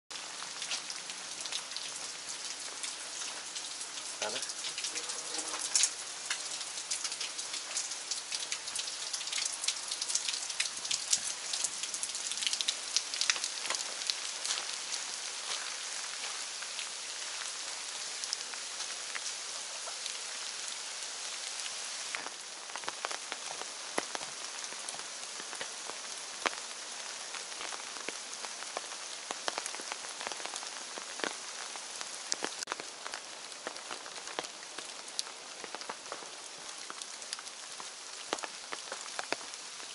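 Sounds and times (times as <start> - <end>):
rain hiss: 0.1 - 39.9
raindrop taps: 2.8 - 14.8.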